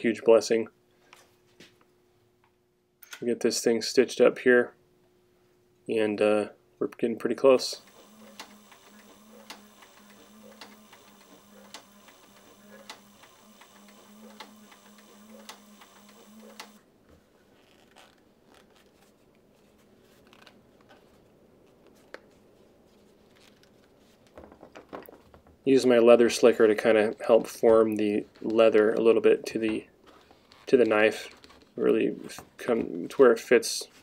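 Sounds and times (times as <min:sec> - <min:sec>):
stitching machine motor hum: 0:07.6 - 0:16.8
stitch clicks: 0:07.8 - 0:16.8
leather handling: 0:17.5 - 0:19.2.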